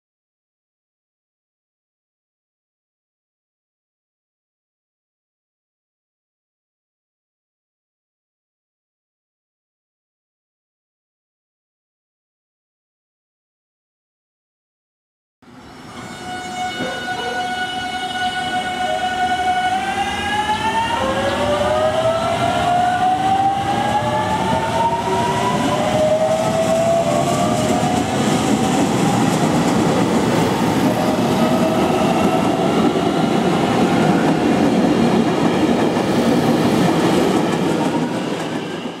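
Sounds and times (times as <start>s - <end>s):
train wheels clattering on track: 24.5s - 39.0s.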